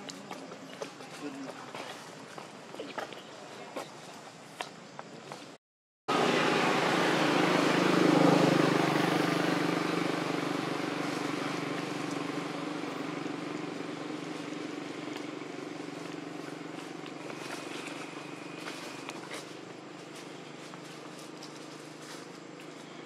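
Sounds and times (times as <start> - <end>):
vehicle engine droning: 6.1 - 23.0.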